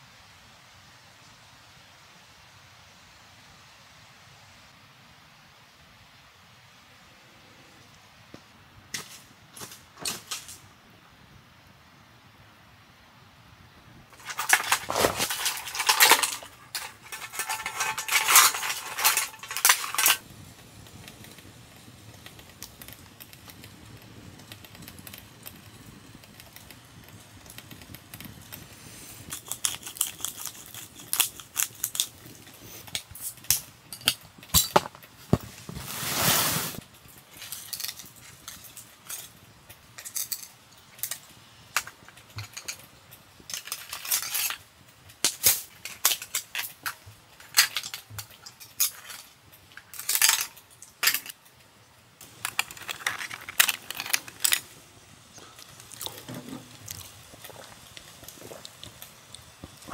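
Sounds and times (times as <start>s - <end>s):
shells clattering against metal pan: 14.2s - 20.2s
tongs knocking shells and pan: 14.2s - 20.2s.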